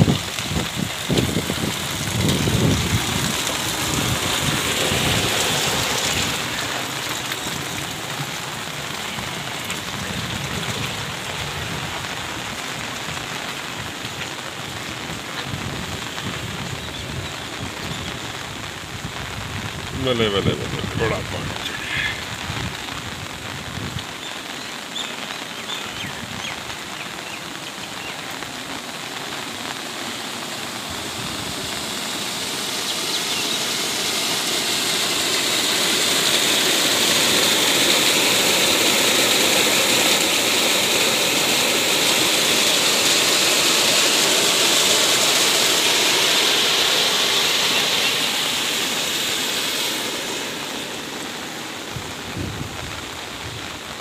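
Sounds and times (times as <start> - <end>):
floodwater rushing: 0.0 - 54.0
heavy rain: 0.0 - 54.0
water gushing from a pipe: 0.0 - 54.0.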